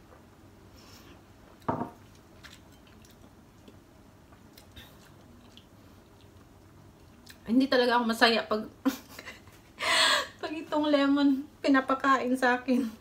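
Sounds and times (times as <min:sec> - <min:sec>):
person chewing wet clicks: 0:02.1 - 0:07.4.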